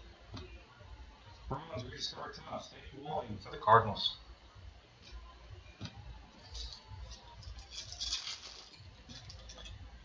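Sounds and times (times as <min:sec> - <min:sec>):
cards rustling: 0:07.7 - 0:09.5.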